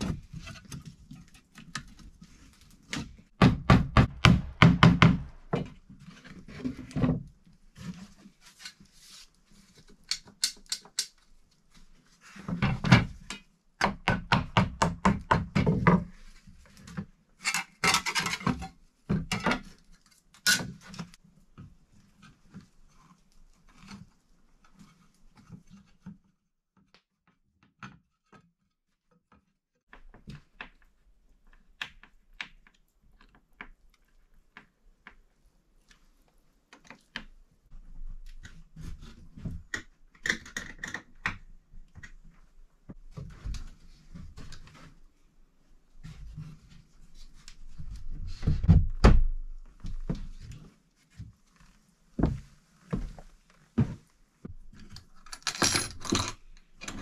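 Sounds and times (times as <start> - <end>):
wooden window sash knocks: 3.4 - 5.6.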